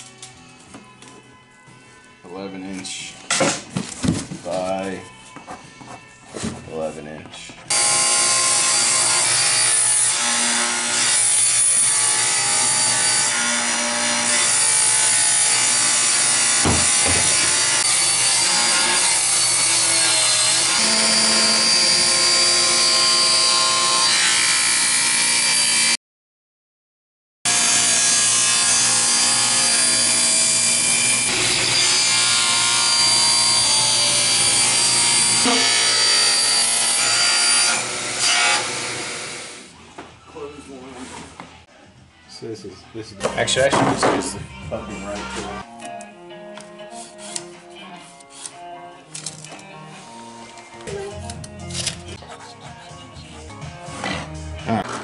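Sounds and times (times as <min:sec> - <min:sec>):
table saw cutting plywood: 0:07.7 - 0:26.0, 0:27.5 - 0:39.7.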